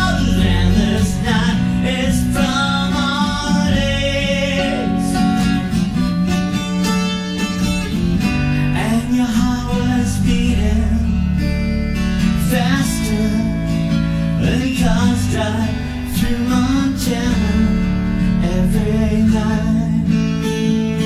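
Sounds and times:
man singing: 0.0s - 5.7s, 8.6s - 21.0s
acoustic guitar strumming: 0.0s - 21.0s.

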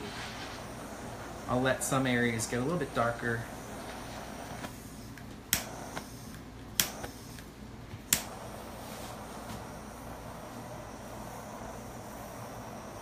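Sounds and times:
torch gas hiss: 0.0s - 13.0s
torch igniter clicks: 3.9s - 8.6s.

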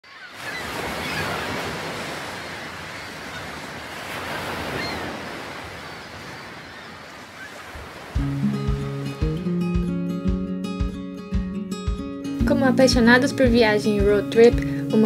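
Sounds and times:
sea waves washing onto shore: 0.1s - 9.6s.

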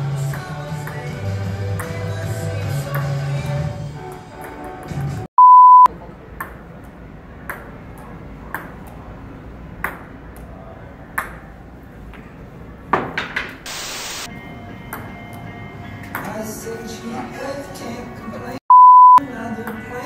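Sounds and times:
censor bleep: 5.4s - 5.9s, 18.7s - 19.2s.

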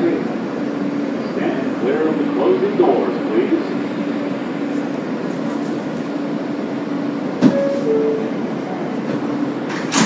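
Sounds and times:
subway car hum: 0.0s - 10.0s
two-note door chime: 7.5s - 8.3s.

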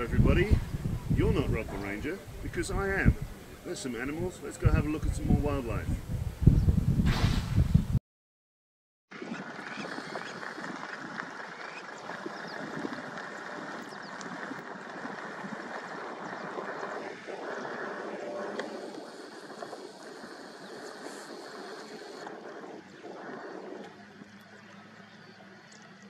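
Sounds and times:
many small bird calls: 9.2s - 26.0s
faint high insect hum: 15.4s - 26.0s.

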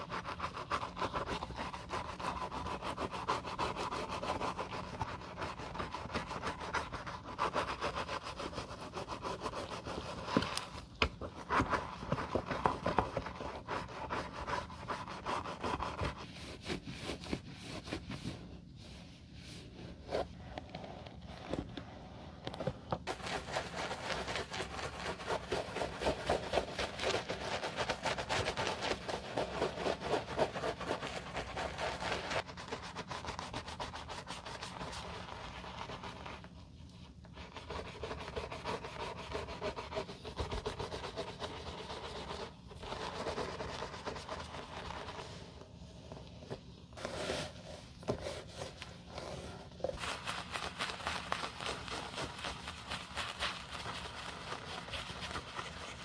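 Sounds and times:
brush scrubbing leather shoes: 23.1s - 36.2s, 50.0s - 56.0s
towel rubbing leather: 47.0s - 56.0s.

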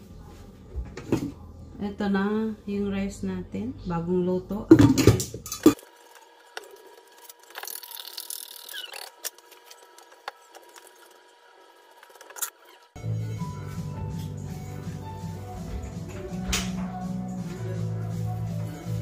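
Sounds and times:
background music: 13.0s - 19.0s.

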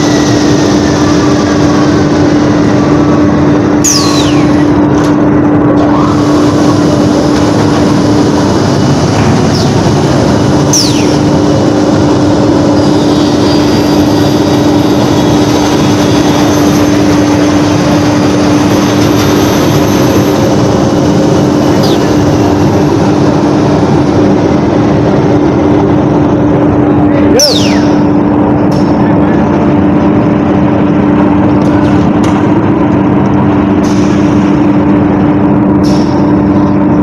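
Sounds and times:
short high whines: 0.0s - 17.5s, 27.0s - 29.0s
trimming machine drone: 0.0s - 37.0s.

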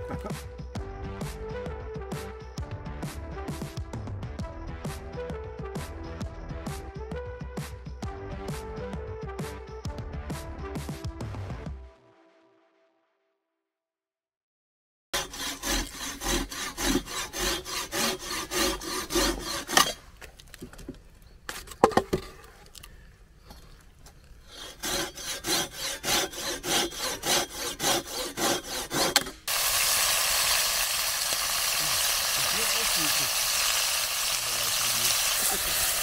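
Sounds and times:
hand saw cutting wood: 15.1s - 20.1s, 24.4s - 30.0s
meat sizzling in a pot: 29.5s - 36.0s.

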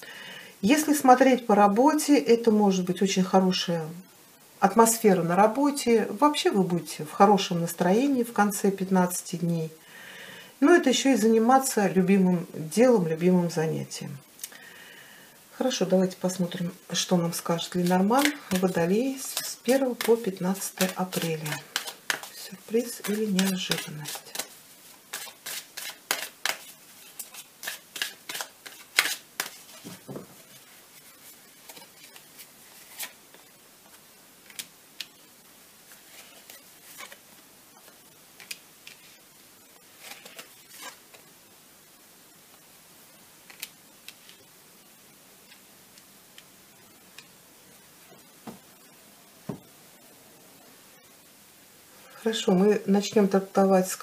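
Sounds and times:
cards shuffling: 17.6s - 35.2s, 35.9s - 37.2s, 37.8s - 39.2s, 39.9s - 41.2s.

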